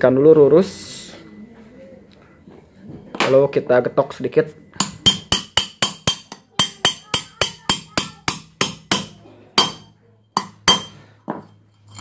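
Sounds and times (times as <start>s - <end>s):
hammer tapping metal punch: 4.8s - 11.5s.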